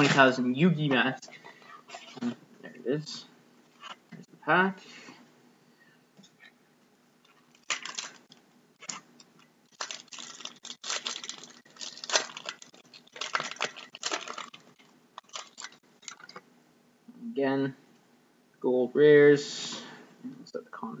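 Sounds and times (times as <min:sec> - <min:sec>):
foil pack tearing and crinkling: 0:07.5 - 0:16.4.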